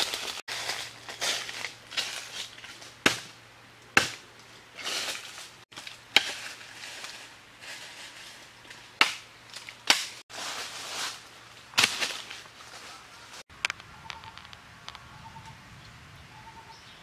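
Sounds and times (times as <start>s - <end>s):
rustling noise: 4.8s - 9.0s, 10.1s - 15.0s.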